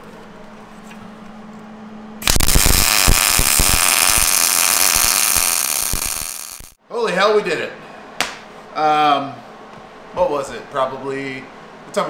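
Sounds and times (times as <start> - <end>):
welding arc crackling: 2.2 - 6.8.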